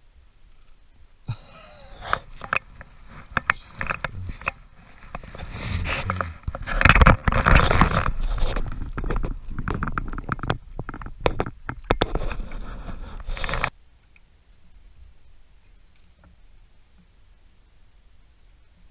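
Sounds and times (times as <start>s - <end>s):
handling rustling and scraping: 1.4s - 13.7s
sharp clicks and knocks: 1.6s - 14.2s.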